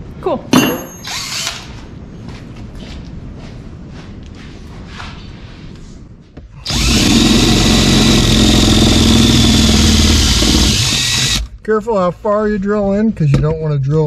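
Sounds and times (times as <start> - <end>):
cordless drill drilling sheet metal: 6.6 - 11.5.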